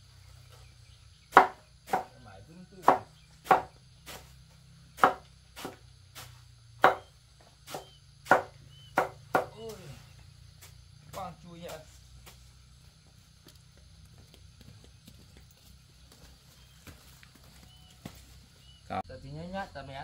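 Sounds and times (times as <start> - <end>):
knife chopping on cutting board: 1.3 - 2.1, 2.8 - 3.7, 5.0 - 5.8, 6.8 - 7.1, 7.7 - 9.6.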